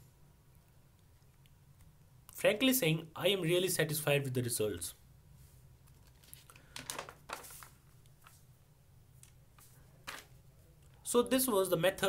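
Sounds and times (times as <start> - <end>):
circuit board handling rustles and clicks: 5.8 - 8.4.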